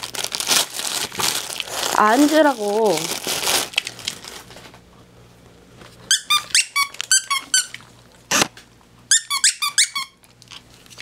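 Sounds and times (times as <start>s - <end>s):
dog toy squeaking: 6.1s - 7.7s, 9.1s - 10.2s.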